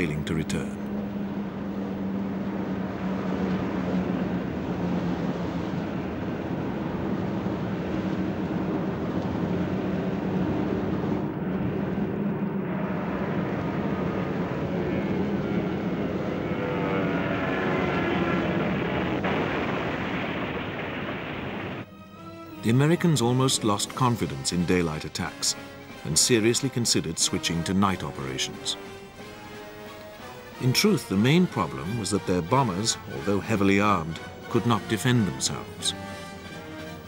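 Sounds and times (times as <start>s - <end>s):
propeller aircraft engines droning: 0.0s - 37.0s.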